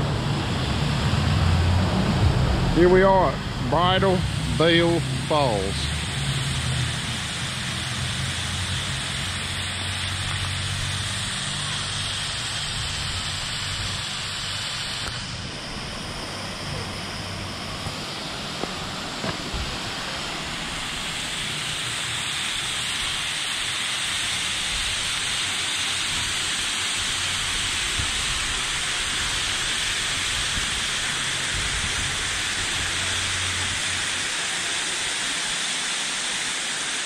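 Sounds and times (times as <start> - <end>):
low hum: 0.0 - 25.0
waterfall rushing onto rocks: 6.9 - 15.3, 18.6 - 37.0.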